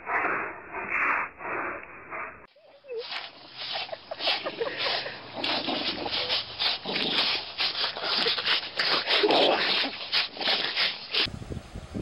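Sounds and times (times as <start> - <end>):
rough rasping scrapes and huffs: 0.0 - 11.3
dogs tugging on a rope: 2.9 - 11.3.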